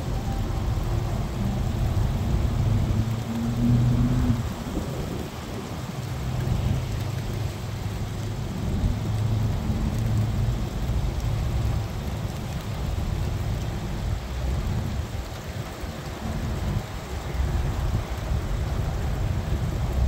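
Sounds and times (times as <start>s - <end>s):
low thunder rumble: 0.0s - 11.9s
steady rain falling: 0.0s - 20.0s.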